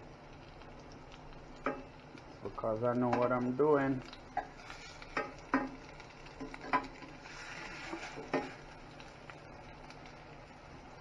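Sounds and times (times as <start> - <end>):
faint sizzling in oil: 0.0 - 11.0.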